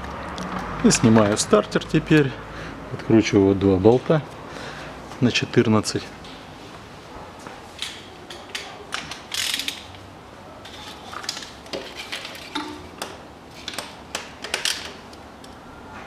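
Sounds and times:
ratchet wrench clicking: 9.3 - 9.9.

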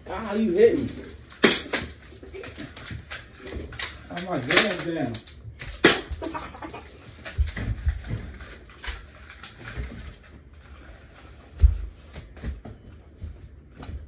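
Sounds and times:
bb guns clicking and firing: 1.3 - 7.0.

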